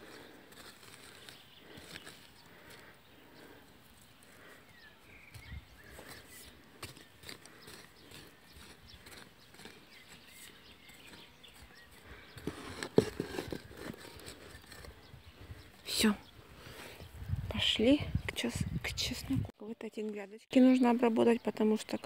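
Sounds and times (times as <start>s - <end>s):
hand cultivator scraping soil: 0.0s - 3.0s, 5.3s - 15.2s.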